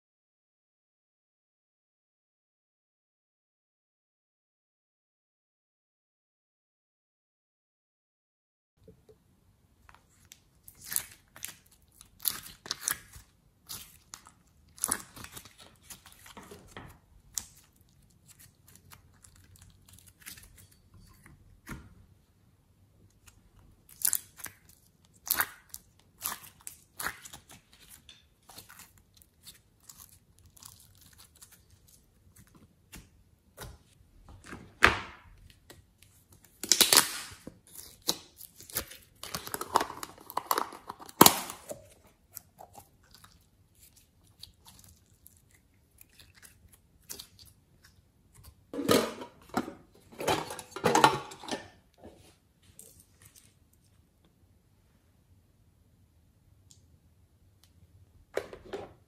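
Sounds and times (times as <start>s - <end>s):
clay squishing: 8.9s - 50.2s
plastic tubs crinkling and clicking: 35.4s - 43.0s.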